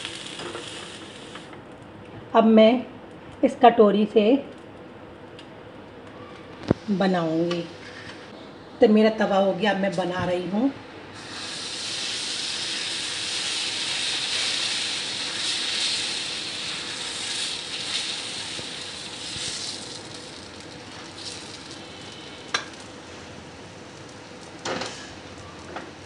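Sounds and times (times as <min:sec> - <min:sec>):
batter sizzling on a hot pan: 0:00.0 - 0:01.5, 0:11.2 - 0:25.4.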